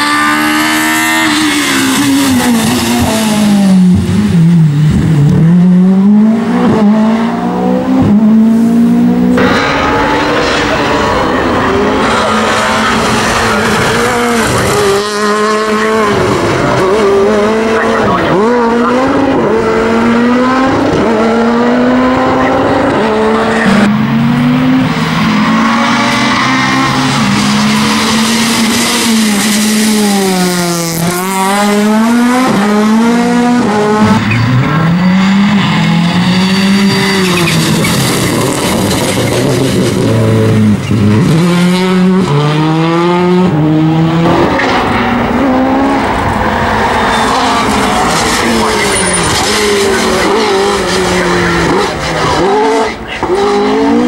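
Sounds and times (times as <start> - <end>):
rally car engines revving: 0.0 - 54.0
tyre squeal: 34.1 - 39.7, 46.9 - 53.3.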